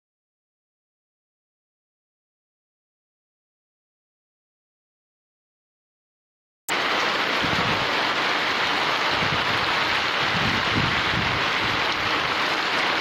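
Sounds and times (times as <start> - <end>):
rain on a tiled roof: 6.7 - 13.0.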